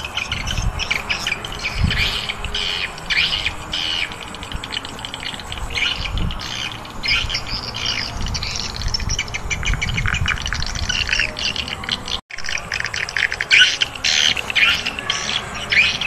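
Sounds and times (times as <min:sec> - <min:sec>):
flock of birds chirping: 0:00.0 - 0:16.0.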